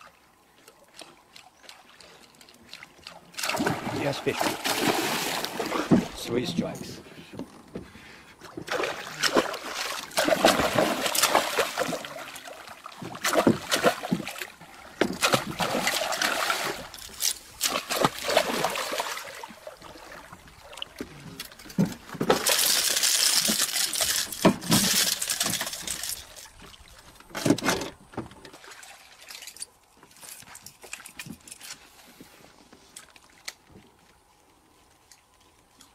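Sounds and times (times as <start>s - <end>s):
fish splashing in water: 2.7s - 6.1s, 8.6s - 21.0s, 22.3s - 26.8s.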